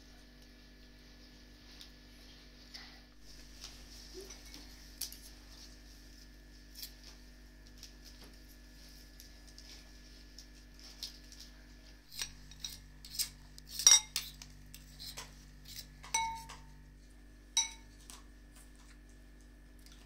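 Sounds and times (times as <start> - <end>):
spoon clinking against ceramic bowl: 13.8 - 14.3, 16.0 - 16.7, 17.6 - 17.9.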